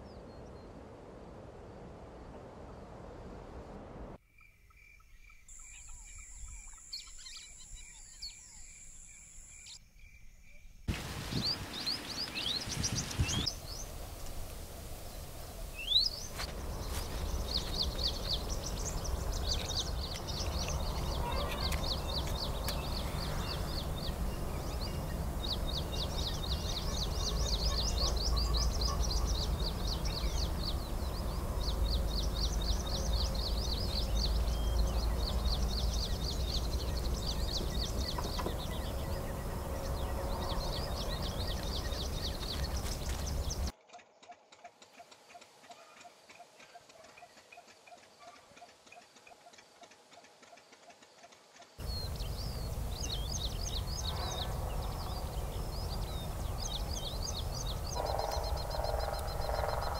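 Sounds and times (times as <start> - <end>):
small birds chirping trills: 4.4 - 59.9
steady low rumble: 11.0 - 43.7, 51.8 - 59.9.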